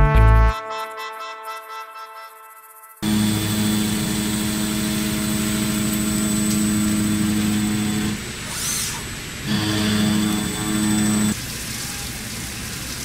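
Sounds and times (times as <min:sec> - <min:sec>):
machine hum and whine: 0:03.0 - 0:11.4.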